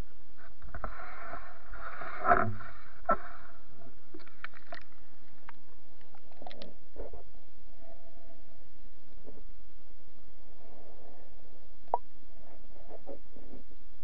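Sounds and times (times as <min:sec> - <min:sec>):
faint clicks and ticks: 0:04.1 - 0:07.2.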